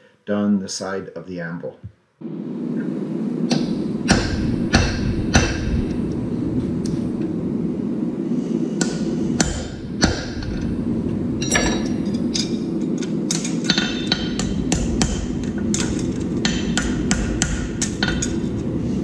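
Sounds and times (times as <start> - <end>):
steady low hum: 0.0 - 19.0
hammer striking hot steel: 3.5 - 7.4, 8.8 - 18.7.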